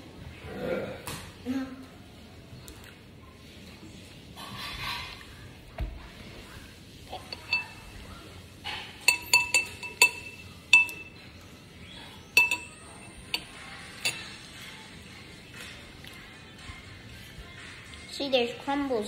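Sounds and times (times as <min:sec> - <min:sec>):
metal spoon clinking against dish: 0:07.1 - 0:11.5, 0:12.2 - 0:14.7.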